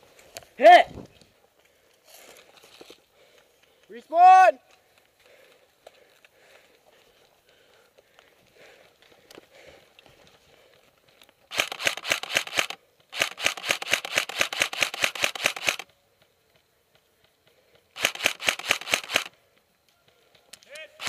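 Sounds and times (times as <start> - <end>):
airsoft rifle rapid fire: 11.5 - 15.9, 18.0 - 19.3.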